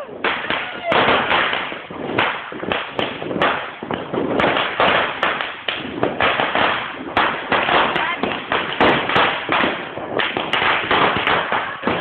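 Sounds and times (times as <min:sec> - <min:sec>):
firecracker bangs: 0:00.0 - 0:12.0
fireworks crackling: 0:00.0 - 0:12.0.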